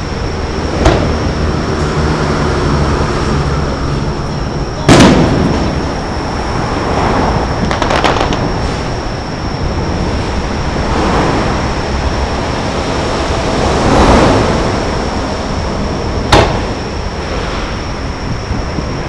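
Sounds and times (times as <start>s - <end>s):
faint high whine: 0.0s - 19.0s
outdoor rumble: 0.0s - 19.0s
firework bang: 4.8s - 6.1s, 7.3s - 9.0s, 16.2s - 17.4s.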